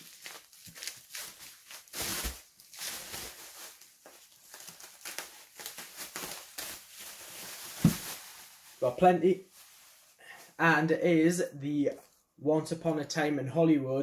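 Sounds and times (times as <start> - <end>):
bubble wrap crinkling: 0.0 - 10.5.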